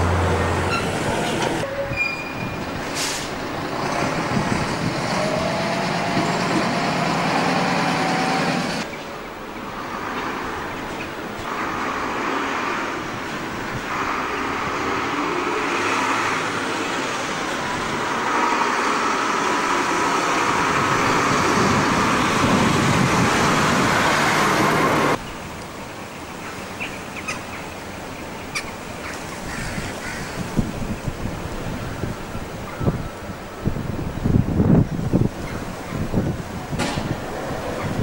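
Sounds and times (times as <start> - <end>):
loud outdoor rushing noise: 2.7 - 26.8.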